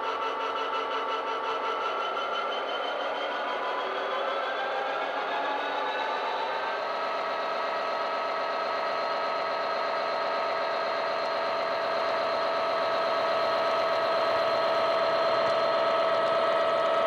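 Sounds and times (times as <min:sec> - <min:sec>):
diesel engine running: 0:06.9 - 0:17.0.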